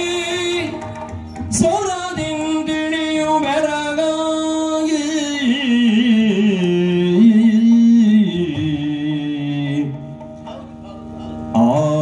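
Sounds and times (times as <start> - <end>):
person singing long notes: 4.2 - 12.0
steady drone: 6.3 - 12.0.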